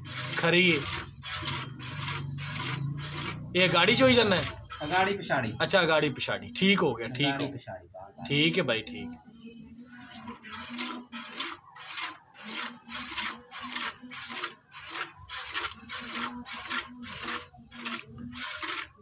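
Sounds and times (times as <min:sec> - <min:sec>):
milk squirting into a bucket: 0:10.0 - 0:19.0.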